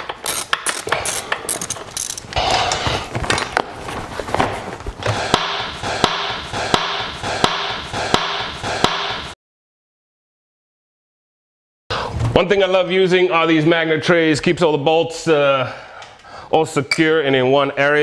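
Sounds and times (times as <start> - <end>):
tools and parts clattering: 0.0 - 2.4
ratchet wrench clicking: 0.2 - 2.4.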